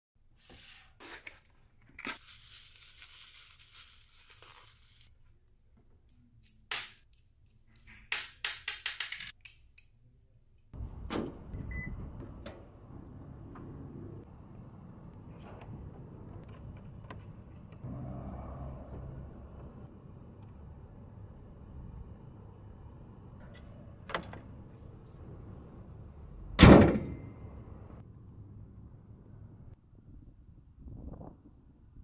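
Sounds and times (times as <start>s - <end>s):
tearing rustling handling noise: 0.6s - 5.1s
low outdoor hum: 10.2s - 30.7s.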